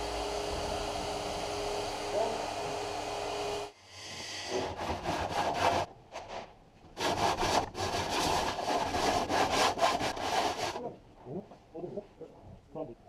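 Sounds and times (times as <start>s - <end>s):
sandpaper scratching by hand: 7.0s - 10.8s.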